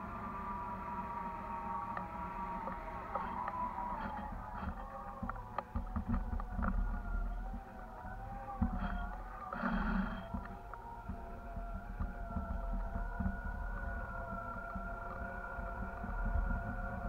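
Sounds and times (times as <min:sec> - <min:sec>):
wavering multi-tone hum: 0:00.0 - 0:17.0
wind buffeting: 0:00.6 - 0:17.0
knocks and rattles: 0:03.1 - 0:17.0.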